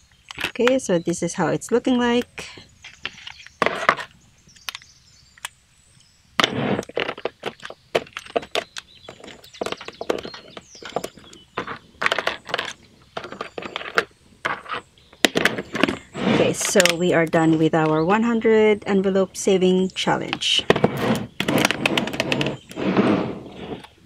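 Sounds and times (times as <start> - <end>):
plastic scraping: 2.8 - 4.8, 6.4 - 18.0, 20.2 - 24.0.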